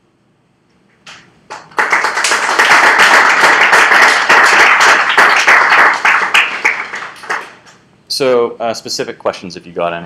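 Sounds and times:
audience applauding: 1.5s - 7.8s.

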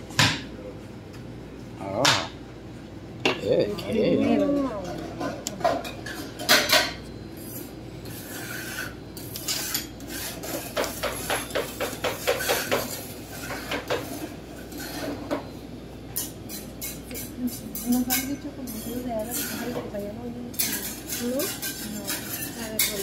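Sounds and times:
metal spatulas scraping cold plate: 7.4s - 15.2s, 18.7s - 19.8s, 20.5s - 23.0s.

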